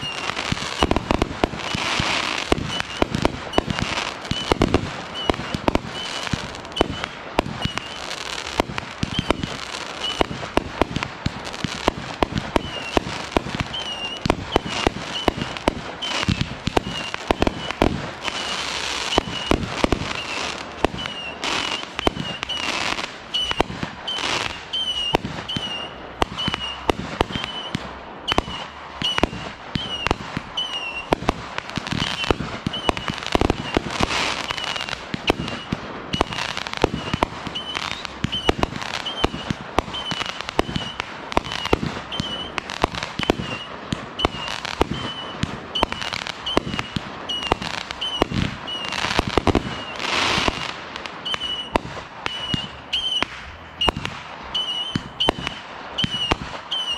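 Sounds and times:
fireworks launch bangs and bursts: 0.0 - 56.9.

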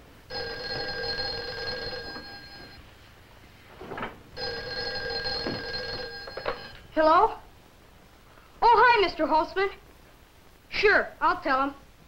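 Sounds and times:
telephone bell ringing: 0.3 - 2.9, 4.4 - 6.9.

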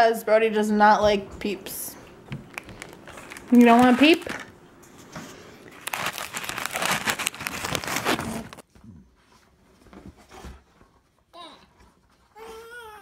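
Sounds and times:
plastic wrapper crinkling: 2.4 - 4.6, 5.7 - 8.6.

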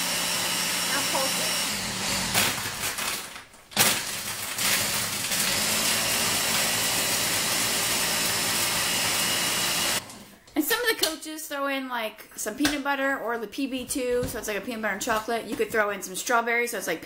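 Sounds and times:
blender motor running: 0.0 - 3.2, 3.8 - 10.2.

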